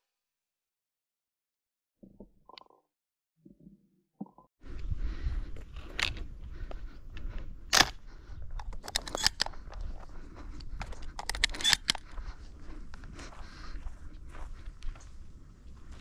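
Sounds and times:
wind on microphone: 4.6s - 11.4s
footsteps in dry grass: 4.8s - 16.0s
camera handling bumps: 10.8s - 12.0s.

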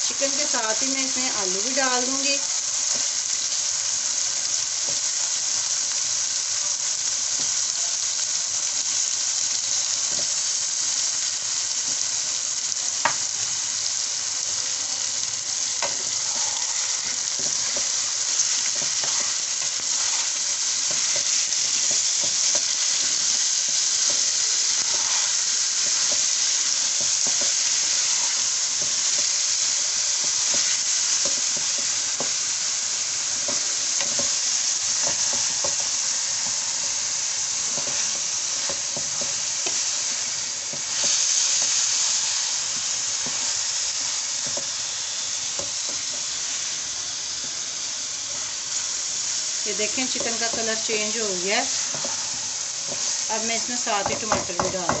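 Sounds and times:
food sizzling in hot oil: 0.0s - 55.0s
wooden spatula scraping pan: 15.8s - 23.2s, 24.0s - 26.2s.

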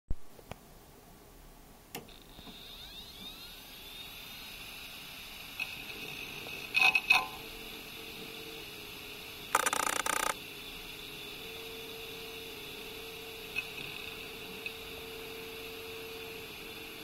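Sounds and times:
hard disk motor whine: 2.1s - 17.0s
hard disk head buzzing clatter: 9.5s - 10.4s.

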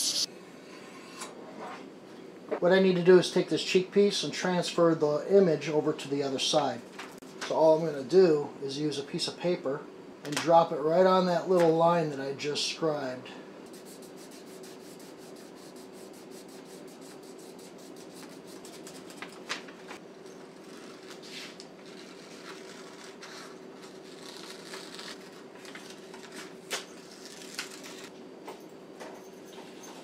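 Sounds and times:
steady low hum: 0.0s - 30.0s
paper rustling: 18.6s - 28.1s.

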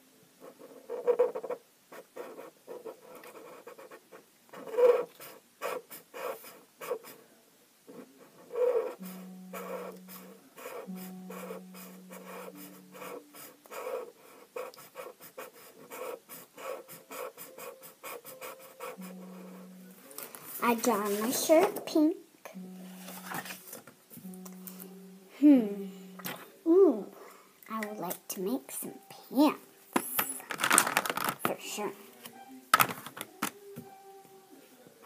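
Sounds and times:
pen scribbling on paper: 0.4s - 7.2s, 7.9s - 19.8s.

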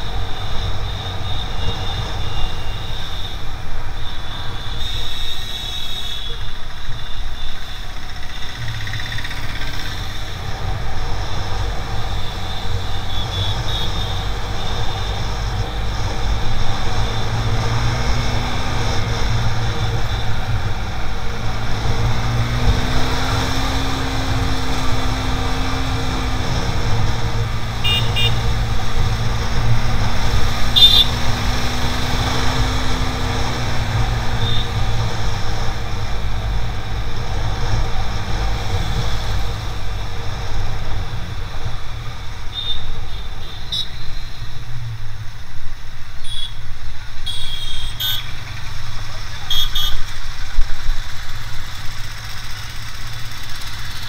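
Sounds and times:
motorcycle engine: 0.0s - 45.3s, 46.2s - 54.0s
wind and road rumble on microphone: 14.2s - 42.4s, 48.3s - 54.0s
short high-pitched toots: 30.7s - 31.2s.

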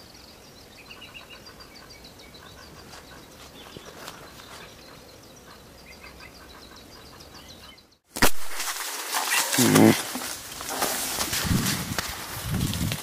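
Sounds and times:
small birds chirping: 0.0s - 8.1s
faint outdoor hiss: 0.0s - 13.0s.

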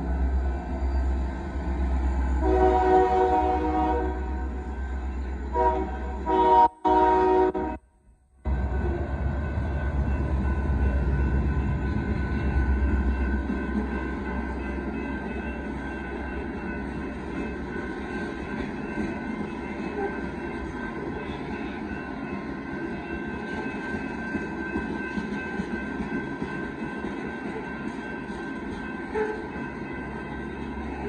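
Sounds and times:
freight train wheels rumbling: 0.0s - 7.8s, 8.4s - 31.0s
steady high tones: 8.4s - 31.0s.

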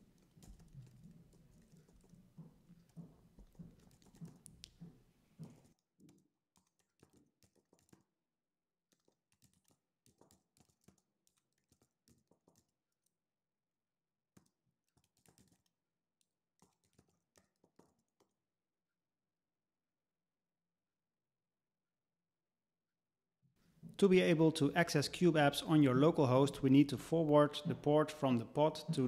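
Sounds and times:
keyboard typing: 2.8s - 8.0s, 14.9s - 15.7s.

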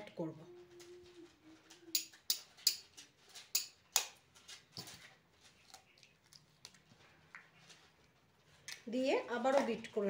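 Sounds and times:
eggshell crackles: 5.3s - 8.9s.

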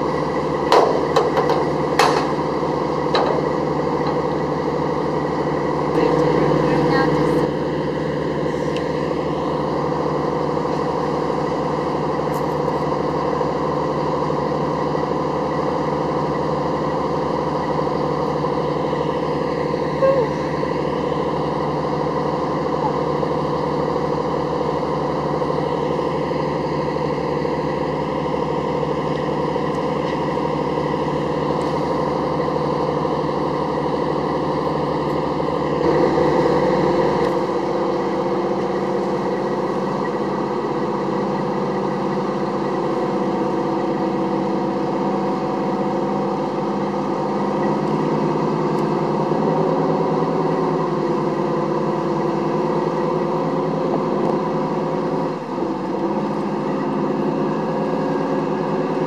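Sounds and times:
diesel engines running: 0.0s - 59.0s.

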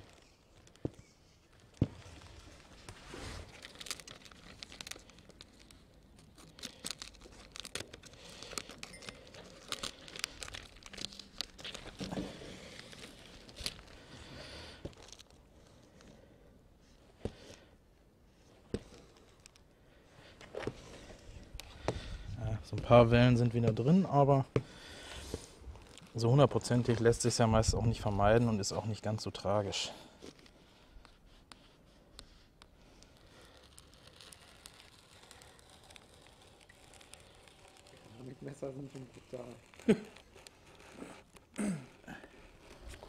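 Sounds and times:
plastic film crinkling: 0.0s - 17.7s, 18.4s - 43.0s.

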